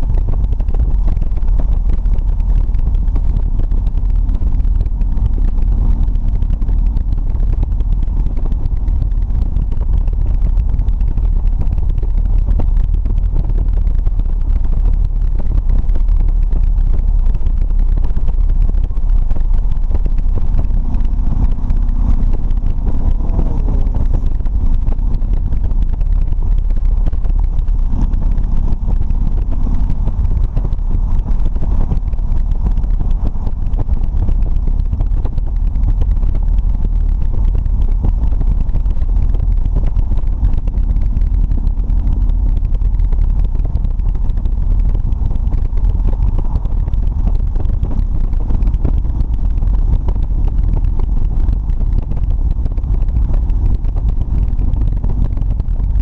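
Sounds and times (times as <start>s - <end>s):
motorcycle engine rumble: 0.0s - 56.0s
wind buffeting microphone: 0.0s - 56.0s.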